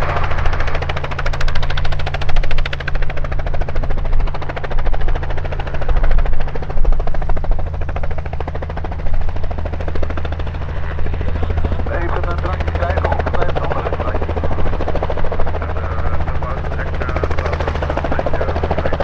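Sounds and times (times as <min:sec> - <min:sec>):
helicopter hovering: 0:00.0 - 0:19.0.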